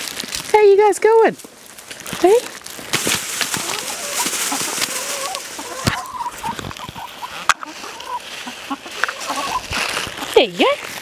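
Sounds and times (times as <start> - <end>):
hens clucking softly: 3.5 - 10.4.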